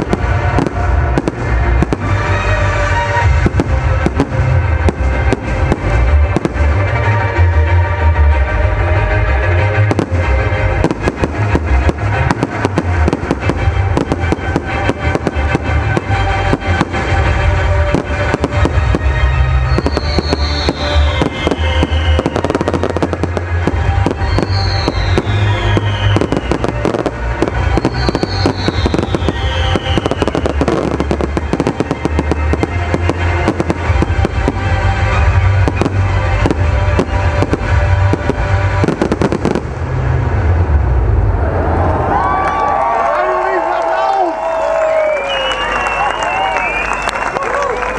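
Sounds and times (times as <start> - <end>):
fireworks cracking and banging: 0.0 - 8.4, 9.3 - 41.1
loud music with bass: 0.0 - 41.2
falling firework whistles: 19.5 - 23.1, 24.0 - 27.1, 27.7 - 32.0, 44.8 - 47.6.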